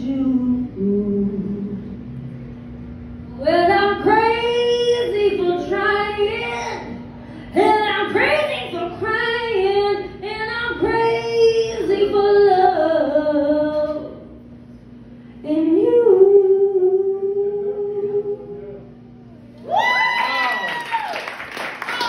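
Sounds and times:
woman singing a cappella: 0:00.0 - 0:02.0, 0:03.4 - 0:06.9, 0:07.5 - 0:14.4, 0:15.4 - 0:18.8.

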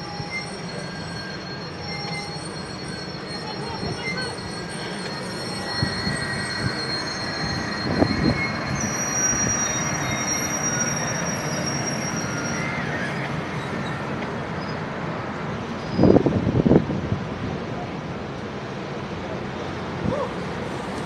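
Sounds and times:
high wheel squeals: 0:00.0 - 0:16.6
wheels rumbling on rail: 0:00.0 - 0:21.0.

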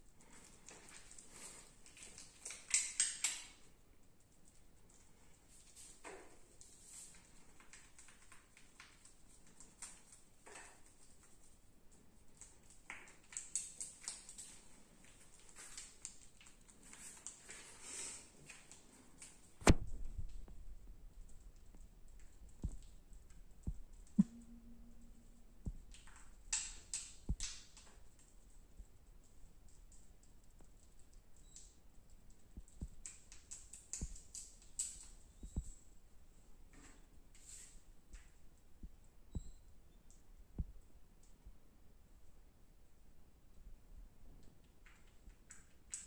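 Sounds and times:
brief low hum: 0:24.2 - 0:25.9.

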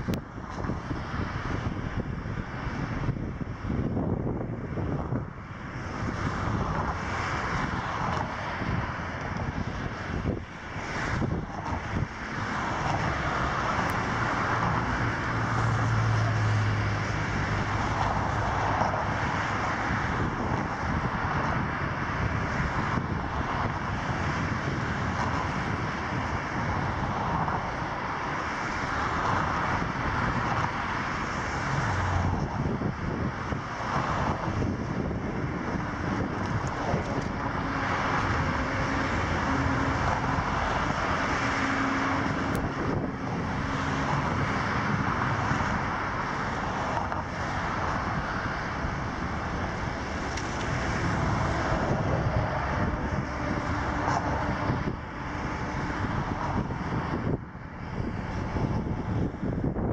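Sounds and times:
rushing outdoor noise: 0:00.0 - 0:59.9.

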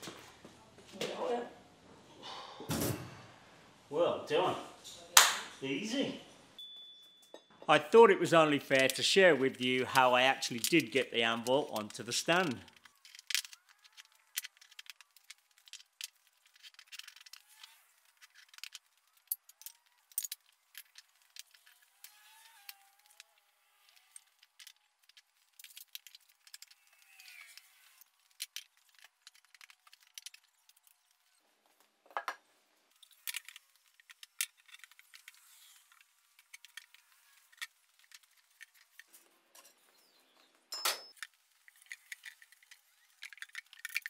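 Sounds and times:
clinks of steel bar and bricks: 0:40.7 - 0:42.5.

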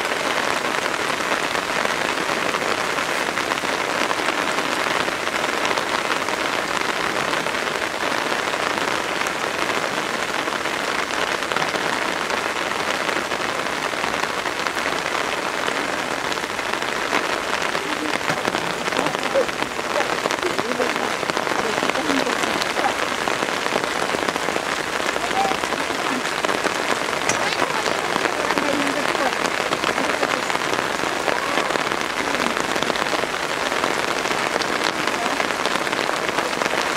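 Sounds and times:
heavy rain on rock and water: 0:00.0 - 0:36.9.

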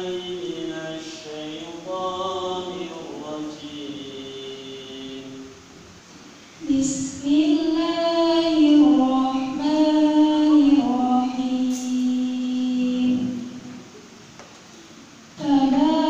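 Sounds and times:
woman singing into a microphone: 0:06.6 - 0:13.8, 0:15.4 - 0:16.0.

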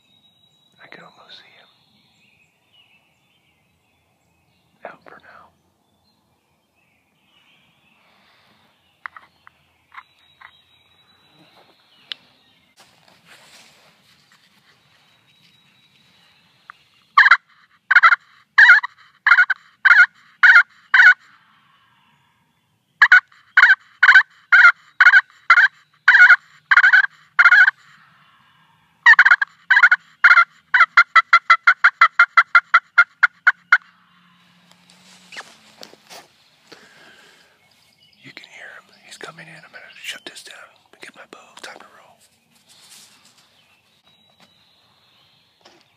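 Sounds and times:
turkey call hen yelps: 0:17.2 - 0:21.4, 0:23.0 - 0:28.0, 0:29.1 - 0:34.0.

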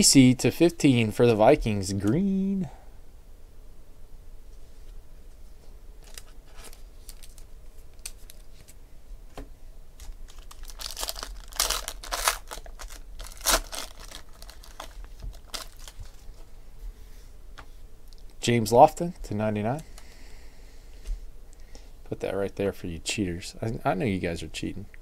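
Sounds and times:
wrapper being torn open: 0:06.0 - 0:08.7, 0:10.0 - 0:16.2.

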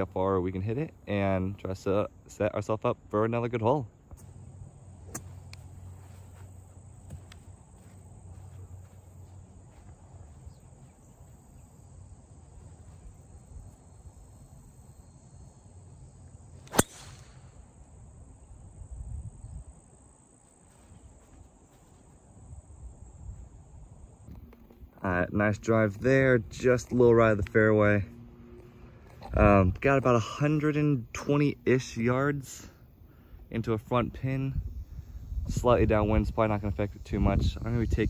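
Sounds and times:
insects droning: 0:00.0 - 0:38.0
golf club striking ball: 0:05.1 - 0:05.6, 0:16.6 - 0:17.5.

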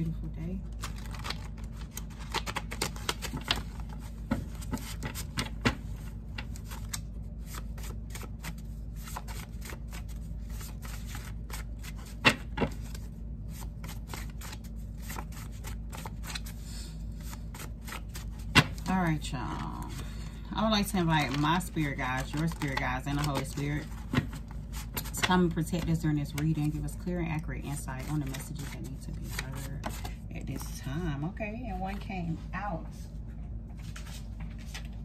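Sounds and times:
steady low hum: 0:00.0 - 0:35.0
cards being shuffled: 0:00.6 - 0:18.9, 0:21.0 - 0:26.9, 0:27.6 - 0:30.8.

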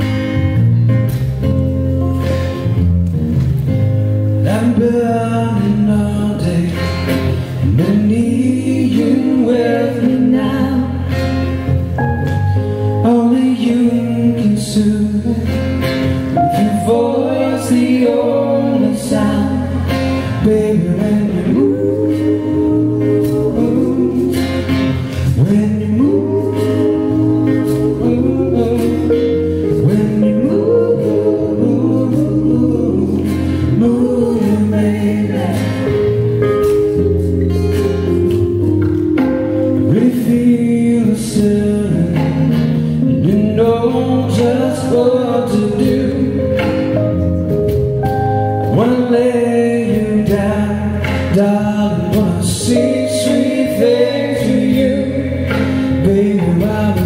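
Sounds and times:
acoustic guitar: 0:00.0 - 0:57.0
electric bass: 0:00.0 - 0:57.0
keyboard: 0:00.0 - 0:57.0
people singing with harmonies: 0:04.4 - 0:57.0.

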